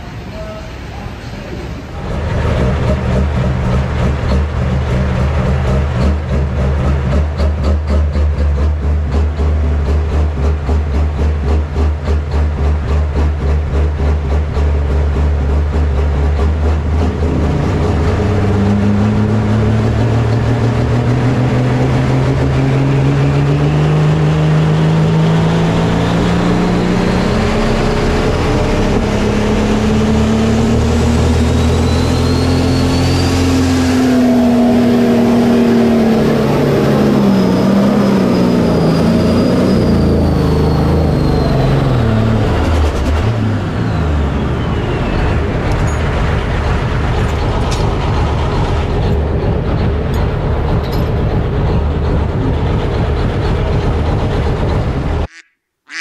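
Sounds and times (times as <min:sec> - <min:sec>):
diesel engine revving: 0:01.5 - 0:55.3
turbo whistle: 0:31.5 - 0:33.7, 0:55.2 - 0:56.0.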